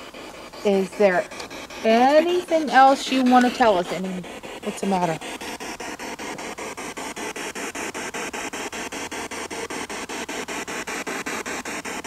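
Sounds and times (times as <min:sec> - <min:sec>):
pulsing radio static hiss: 0:00.0 - 0:12.0.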